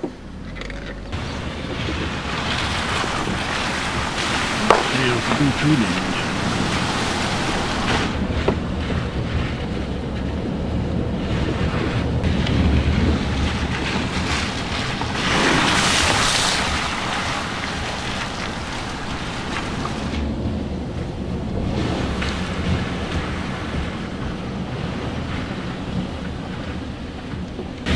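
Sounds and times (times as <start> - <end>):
tyre and road noise: 0.0 - 27.9
rushing hiss of wet road: 1.2 - 8.2, 12.3 - 20.2.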